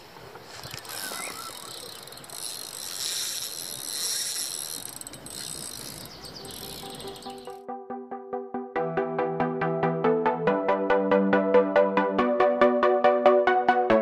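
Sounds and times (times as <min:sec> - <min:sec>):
fishing reel whirring and clicking: 0:00.5 - 0:07.6
electronic music: 0:06.5 - 0:14.0.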